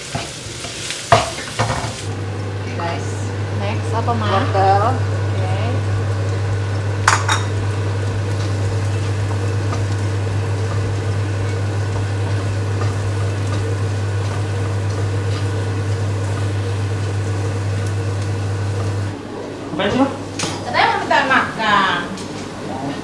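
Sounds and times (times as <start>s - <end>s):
vegetables sizzling: 0.0s - 22.7s
low hum: 2.1s - 22.8s.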